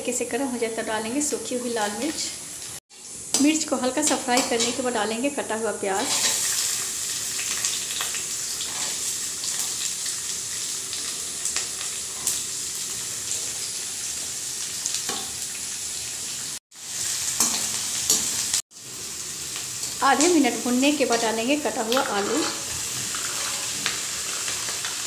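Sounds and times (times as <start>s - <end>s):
onions sizzling in oil: 0.0s - 25.0s
metal spatula scraping pan: 6.0s - 6.5s, 8.6s - 9.6s, 22.1s - 24.0s.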